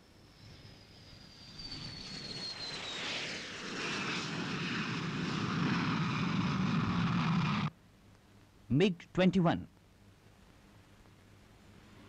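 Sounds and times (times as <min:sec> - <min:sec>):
jet engine roaring: 0:00.0 - 0:07.7.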